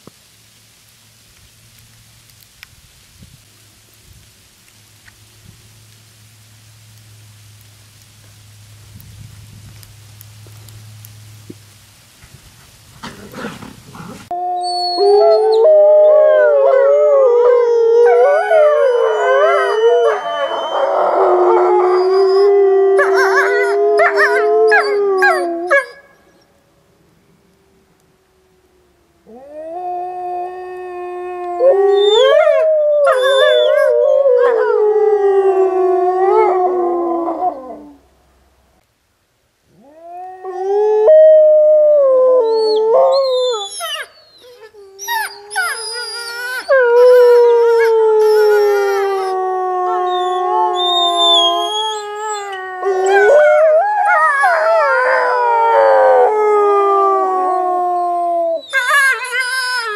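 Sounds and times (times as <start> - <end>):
wolves howling in chorus: 47.0 - 58.6.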